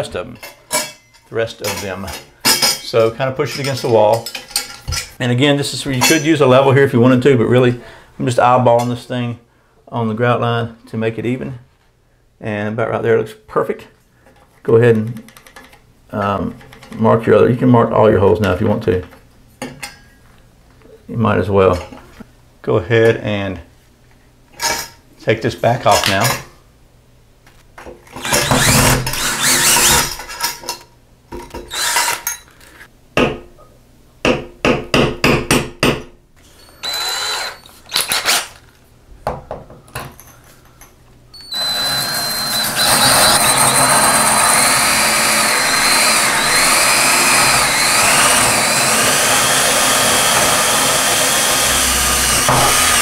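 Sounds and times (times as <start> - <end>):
drill grinding into tile: 28.2 - 30.1, 31.7 - 32.2, 36.6 - 38.4, 41.4 - 53.0
cordless drill backing out screw: 36.7 - 38.5, 41.4 - 53.0.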